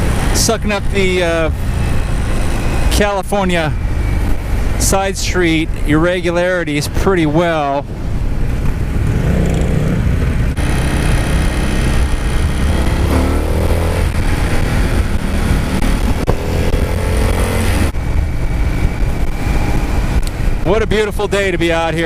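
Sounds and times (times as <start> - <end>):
motorcycle engine accelerating: 8.5 - 20.6.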